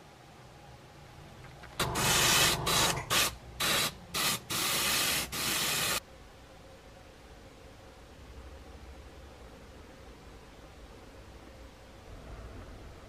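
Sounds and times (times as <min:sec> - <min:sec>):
airbrush spraying hiss: 0:01.8 - 0:06.0.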